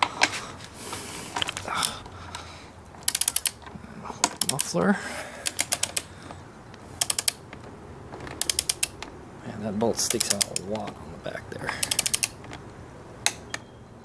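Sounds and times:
ratchet torque wrench clicking: 0:03.0 - 0:03.6, 0:04.2 - 0:04.8, 0:05.4 - 0:06.1, 0:06.9 - 0:07.4, 0:08.4 - 0:09.1, 0:10.0 - 0:10.9, 0:11.7 - 0:12.5.

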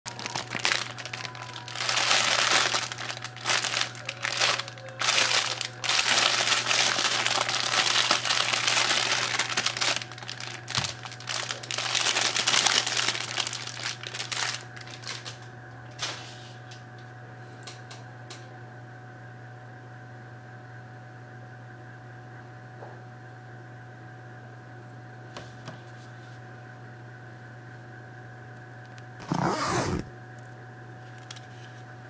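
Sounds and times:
plastic bag crinkling: 0:00.1 - 0:15.3, 0:29.2 - 0:30.1.

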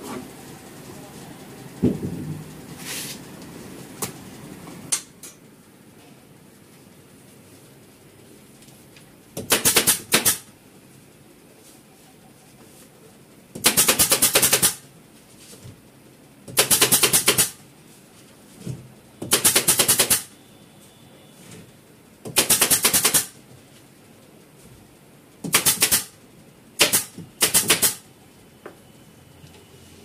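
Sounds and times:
pneumatic staple gun firing: 0:09.4 - 0:10.5, 0:13.6 - 0:14.8, 0:16.5 - 0:17.6, 0:19.3 - 0:20.3, 0:22.3 - 0:23.3, 0:25.5 - 0:26.2, 0:26.8 - 0:28.0.

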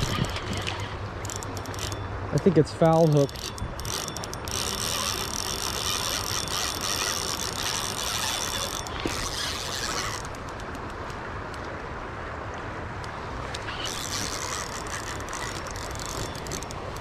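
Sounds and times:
fishing reel ratcheting whir: 0:00.0 - 0:11.2, 0:13.5 - 0:17.0
low wind rumble: 0:00.0 - 0:17.0.

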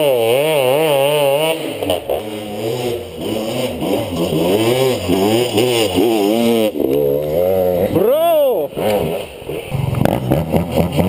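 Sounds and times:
dirt bike engines revving: 0:00.0 - 0:11.0.

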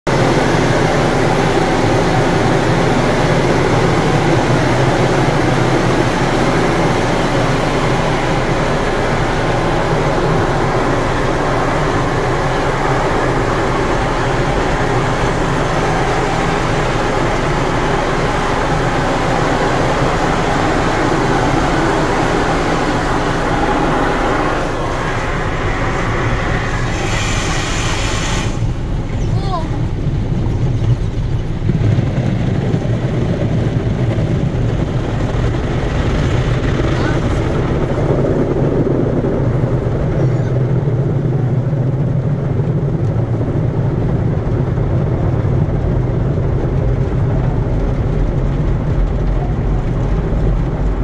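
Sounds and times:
car wash water and brushes rushing: 0:00.1 - 0:39.0, 0:42.7 - 0:51.0.

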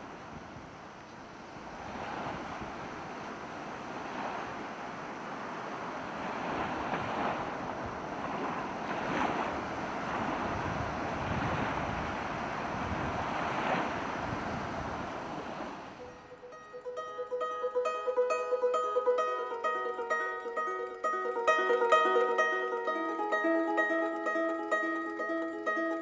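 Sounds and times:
wind on microphone: 0:00.0 - 0:16.3
sea waves washing ashore: 0:00.0 - 0:26.0.

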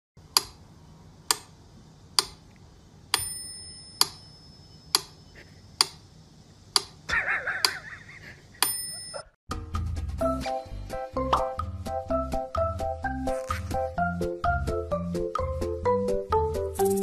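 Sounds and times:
bell-like tone: 0:08.7 - 0:09.3.

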